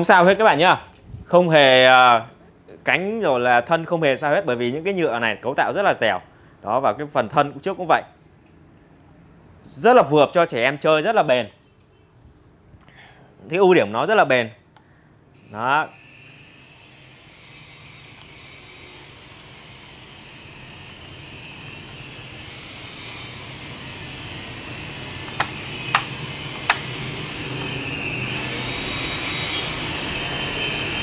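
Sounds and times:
toy helicopter rotors whirring: 15.4s - 31.0s
sharp clicks: 25.3s - 26.9s.

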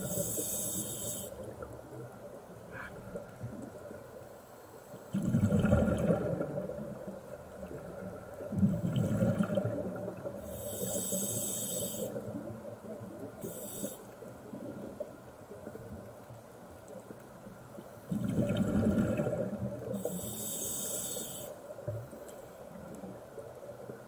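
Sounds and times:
regulator hissing inhalations: 0.0s - 1.4s, 10.5s - 12.2s, 13.4s - 14.2s, 20.0s - 21.6s
underwater exhaled bubbles: 5.1s - 16.1s, 18.0s - 22.1s.

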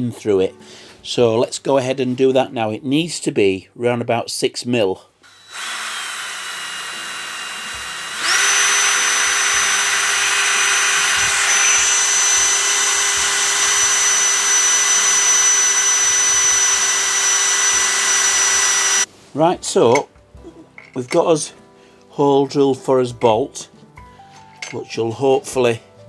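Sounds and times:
cordless drill boring metal: 5.2s - 19.1s.

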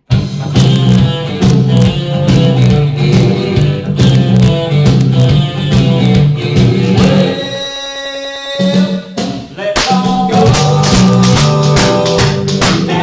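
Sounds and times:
heavy bass line: 0.0s - 7.8s
guitar: 0.0s - 13.0s
spoons played as percussion: 0.1s - 13.0s
held note: 7.0s - 9.6s.

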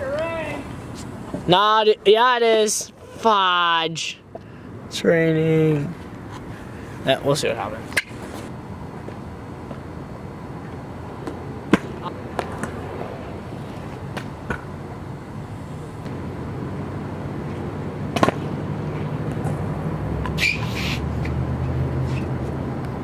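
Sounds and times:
scooter wheels rolling on concrete: 5.7s - 16.2s.

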